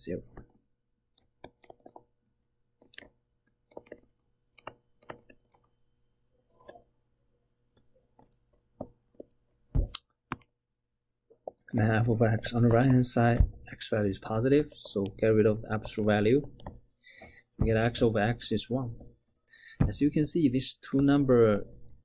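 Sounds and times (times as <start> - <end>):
faint steady hum: 0.0 - 22.0
stylus tapping on tablet: 1.2 - 2.1, 2.8 - 5.7, 8.2 - 10.5, 14.5 - 18.0.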